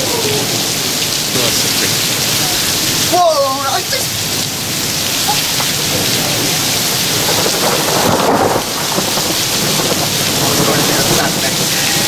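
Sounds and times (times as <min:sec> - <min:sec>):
heavy rain pouring: 0:00.0 - 0:12.0
thunder rumbling: 0:03.8 - 0:12.0.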